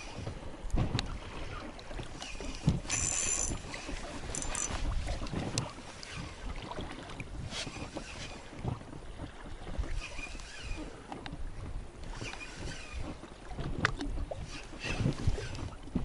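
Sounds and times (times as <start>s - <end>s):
small waves lapping against boat hull: 0.0s - 16.0s
wind on microphone: 0.0s - 16.0s.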